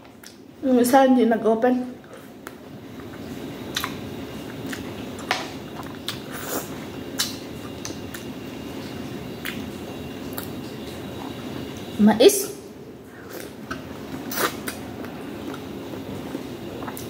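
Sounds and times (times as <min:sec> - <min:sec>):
low background hum: 0:00.0 - 0:17.0
eating clicks and smacks: 0:02.4 - 0:06.2, 0:07.2 - 0:08.3.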